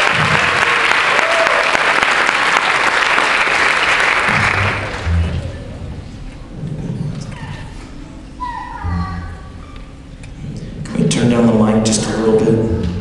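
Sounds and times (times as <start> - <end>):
audience applauding: 0.0 - 5.6
low musical notes: 4.3 - 6.9.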